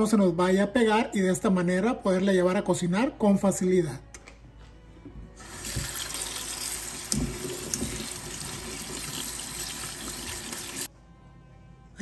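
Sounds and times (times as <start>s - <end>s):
tap water running into steel sink: 5.4s - 10.9s.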